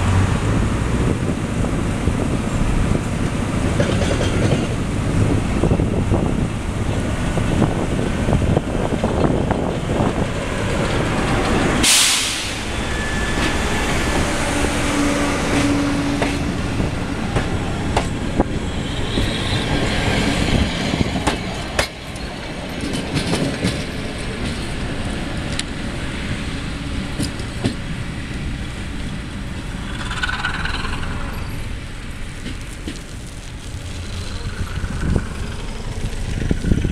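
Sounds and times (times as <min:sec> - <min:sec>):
diesel locomotive passing: 0:00.0 - 0:36.9
wheels clicking over rail joints: 0:02.6 - 0:11.9, 0:15.4 - 0:36.9
loud air hiss: 0:11.8 - 0:15.0.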